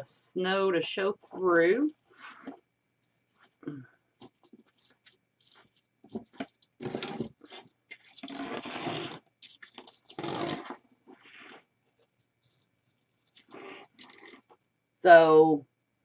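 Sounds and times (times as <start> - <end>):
wreath rustling and clicking: 4.2 - 14.3.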